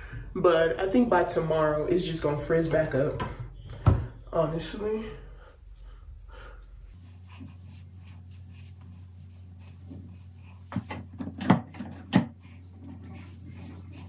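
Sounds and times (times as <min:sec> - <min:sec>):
low steady hum: 0:00.0 - 0:14.0
hair and brush handling noise: 0:06.6 - 0:11.5, 0:12.5 - 0:14.0.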